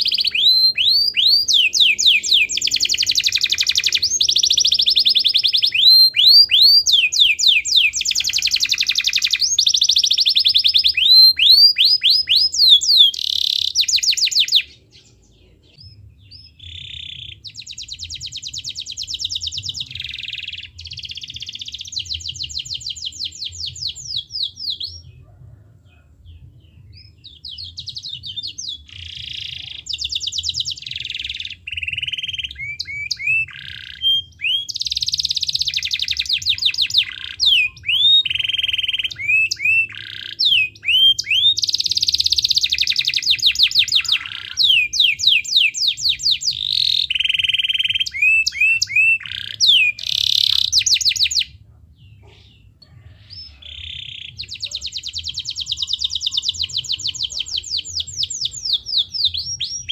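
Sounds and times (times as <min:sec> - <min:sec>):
canary singing trills: 0:00.0 - 0:59.9.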